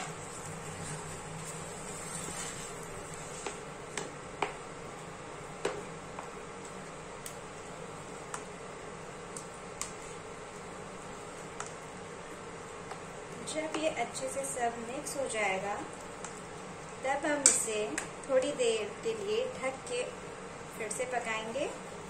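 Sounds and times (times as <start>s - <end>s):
spatula scraping a pan: 0.0s - 3.6s
induction cooktop hum: 0.0s - 22.0s
spatula tapping a pan: 3.4s - 4.6s, 17.4s - 18.1s.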